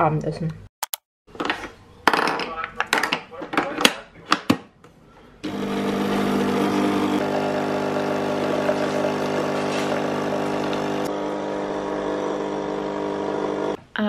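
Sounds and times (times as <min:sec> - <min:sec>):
coffee machine pump humming: 0:05.4 - 0:13.8.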